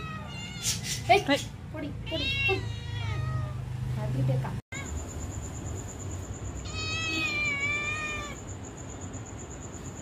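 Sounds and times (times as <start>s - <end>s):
kitten meowing: 2.1s - 3.6s, 6.7s - 8.4s.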